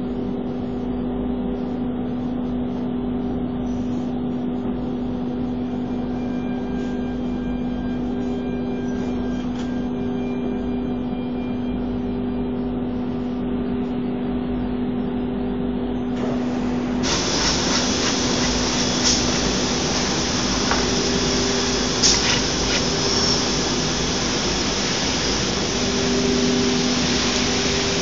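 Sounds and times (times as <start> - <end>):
dust extraction rushing: 16.2 - 28.0
router spindle hum: 16.2 - 28.0
rushing hiss of air: 16.2 - 28.0.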